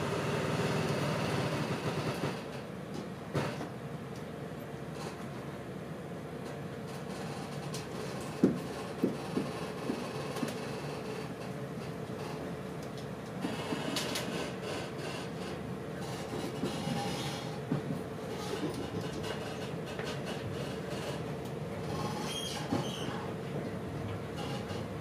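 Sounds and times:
train wheels knocking on track: 0.0s - 3.8s, 8.0s - 11.1s, 16.2s - 20.6s
train running rumble: 0.0s - 25.0s.

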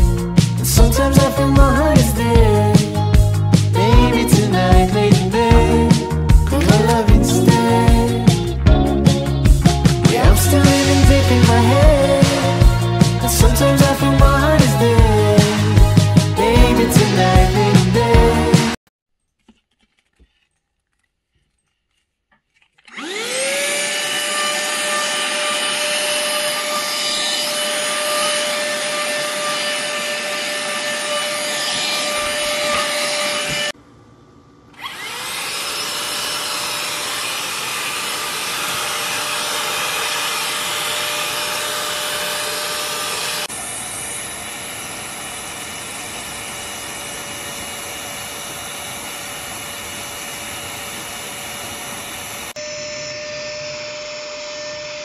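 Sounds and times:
handheld vacuum cleaner humming: 22.8s - 33.8s, 34.8s - 55.0s.

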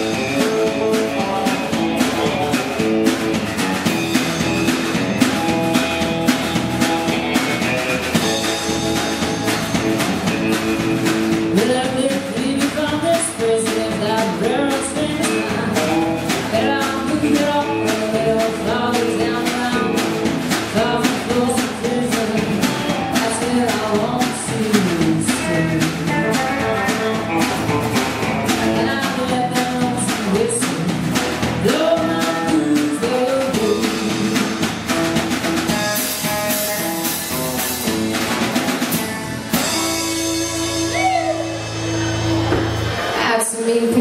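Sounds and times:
woman singing: 0.0s - 2.4s, 11.5s - 26.5s, 28.5s - 34.7s, 43.2s - 44.0s
live band playing country song: 0.0s - 44.0s.

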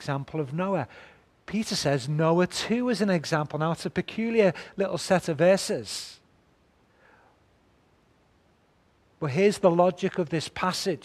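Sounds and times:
man speaking: 0.0s - 0.9s, 1.5s - 6.2s, 9.2s - 11.0s
faint soft breath: 0.9s - 1.3s, 6.9s - 7.4s.

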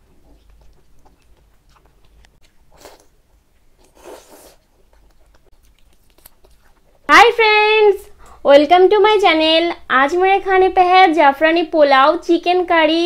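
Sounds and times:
chewing food: 0.0s - 7.1s
wet mouth noises: 0.0s - 7.1s.

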